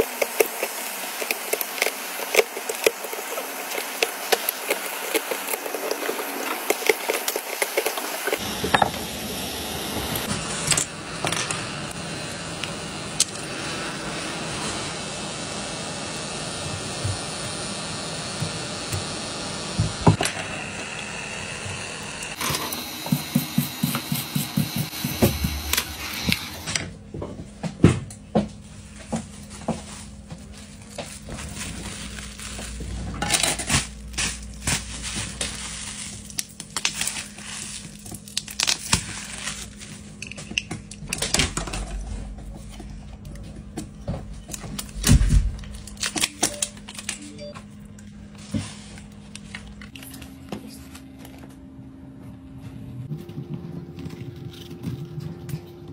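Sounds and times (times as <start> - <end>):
plastic bubble bag crinkling: 0.0 - 8.4, 29.2 - 40.3
whirring tool: 0.0 - 26.8.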